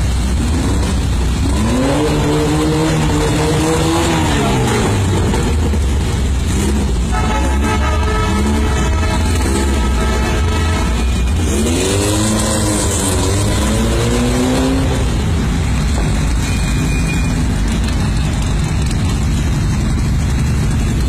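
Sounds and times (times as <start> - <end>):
engine revving: 0.0 - 16.4.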